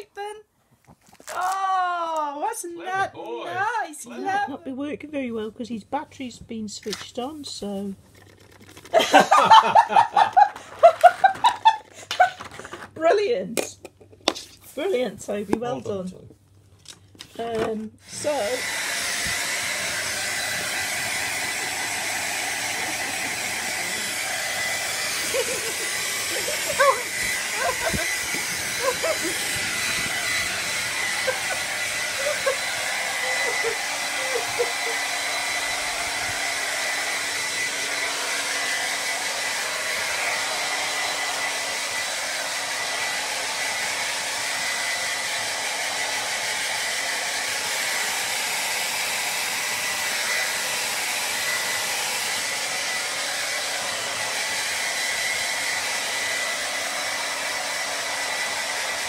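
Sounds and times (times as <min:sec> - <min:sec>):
hair dryer blowing: 0:08.2 - 0:12.9, 0:17.4 - 0:59.0.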